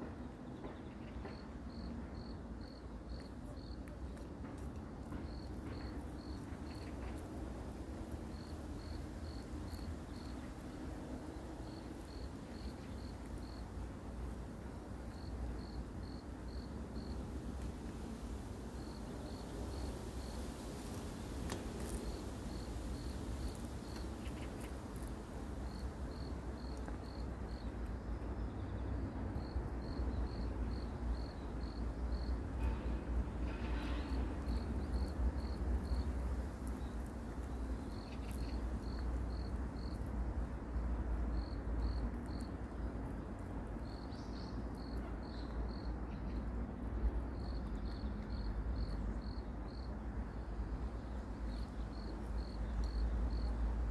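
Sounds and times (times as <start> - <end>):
cricket chirping: 1.0 - 3.9, 5.0 - 7.4, 8.0 - 10.7, 11.3 - 17.2, 18.7 - 53.9.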